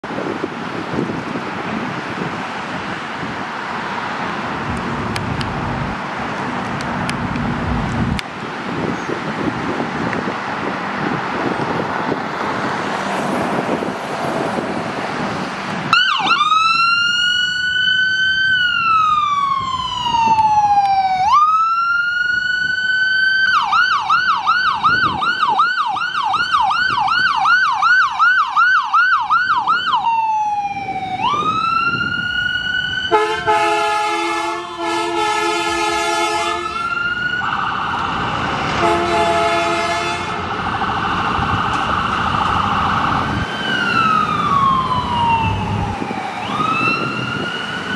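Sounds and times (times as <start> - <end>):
ambulance siren wailing and yelping: 15.9 - 34.0, 35.8 - 47.9
air horns: 33.1 - 36.9, 38.8 - 40.5.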